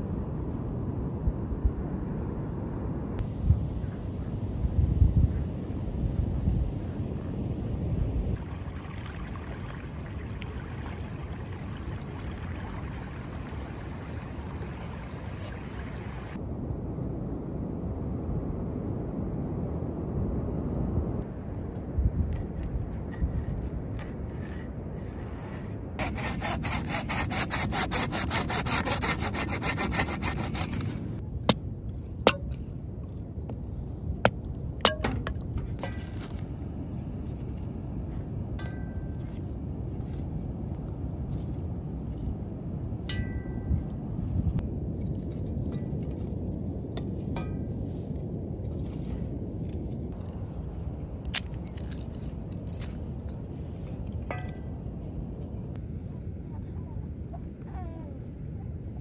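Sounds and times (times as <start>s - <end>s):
wind: 0.0s - 59.0s
knife sawing through bread: 26.0s - 31.0s.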